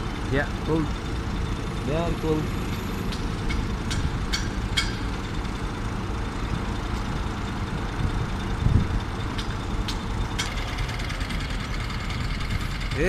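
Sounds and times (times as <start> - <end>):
construction machinery engine drone: 0.0 - 13.0.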